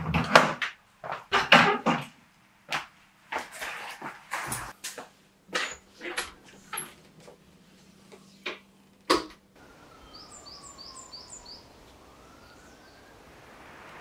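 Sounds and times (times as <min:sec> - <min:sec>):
distant siren wailing: 0:09.5 - 0:14.0
bird chirping: 0:09.6 - 0:14.0.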